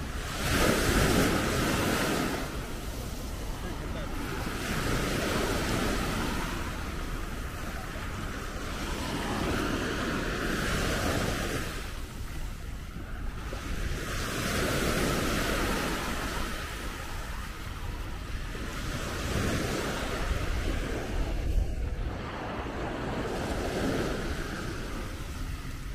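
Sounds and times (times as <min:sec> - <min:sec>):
sea waves breaking on beach: 0:00.0 - 0:25.9
wind buffeting microphone: 0:00.0 - 0:25.9.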